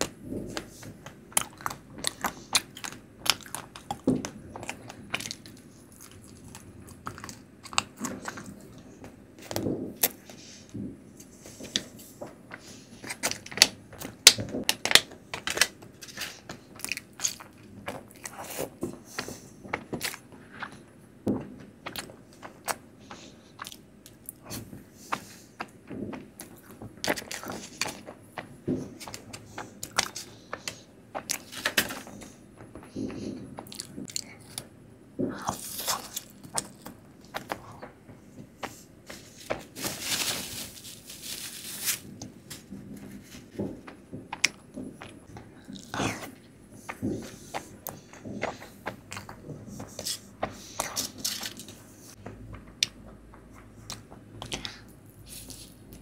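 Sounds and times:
chewing and eating: 0.0s - 10.2s, 15.4s - 39.3s, 42.2s - 56.0s.

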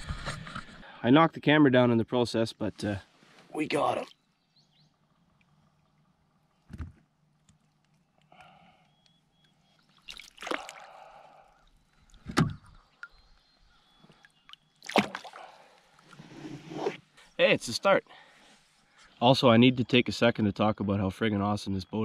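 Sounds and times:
water splashes: 3.6s - 4.2s, 9.9s - 13.4s, 14.1s - 16.3s.

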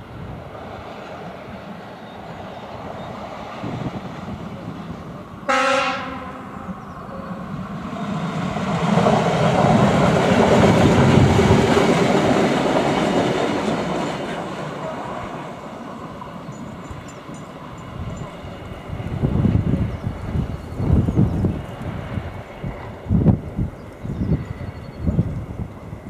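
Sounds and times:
diesel railcar passing: 0.0s - 26.0s
train horn blast: 5.5s - 7.3s.

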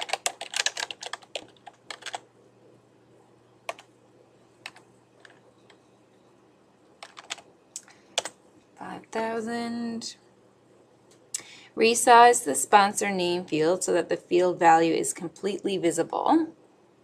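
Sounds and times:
typing on keyboard: 0.0s - 2.3s, 3.7s - 3.9s, 4.6s - 5.8s, 7.0s - 7.5s, 8.2s - 8.4s.

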